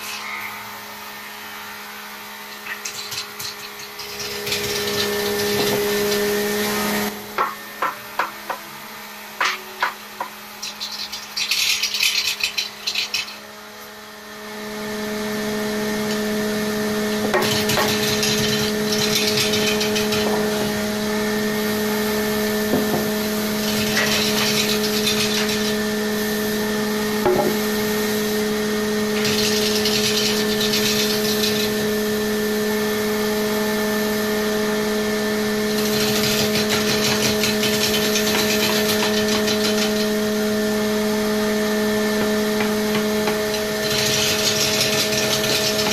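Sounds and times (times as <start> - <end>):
turning tool cutting wood: 2.5 - 7.2, 10.6 - 13.4, 15.9 - 33.0, 34.7 - 45.9
lathe motor humming: 3.2 - 8.3, 12.6 - 45.9.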